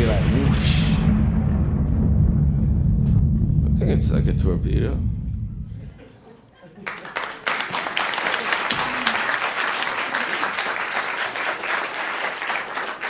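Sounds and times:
audience applauding: 6.7 - 13.0.

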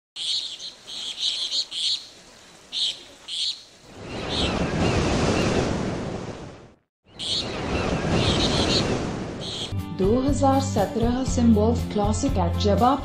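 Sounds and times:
birds chirping: 0.2 - 5.7, 7.0 - 9.8
surf wave surging: 7.3 - 9.7.

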